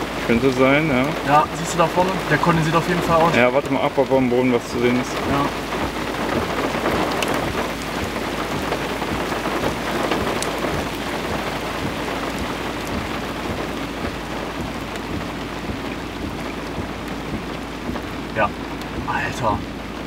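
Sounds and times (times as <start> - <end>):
steady rain: 0.0 - 20.0
low thunder rumble: 4.6 - 20.0.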